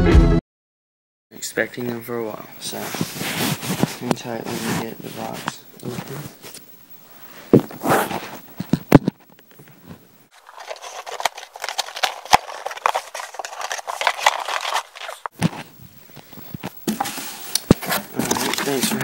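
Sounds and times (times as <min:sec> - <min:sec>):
knocks and bumps on box: 0:07.5 - 0:09.2
cardboard tearing and rustling: 0:07.6 - 0:08.4, 0:10.3 - 0:15.6, 0:16.9 - 0:19.0.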